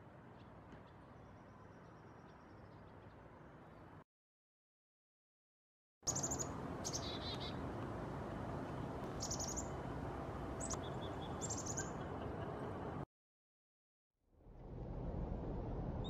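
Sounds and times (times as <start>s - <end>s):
outdoor background noise: 0.0s - 4.0s, 6.0s - 13.1s, 14.3s - 16.0s
chickadees calling: 6.1s - 7.6s, 9.1s - 9.8s, 10.6s - 12.7s.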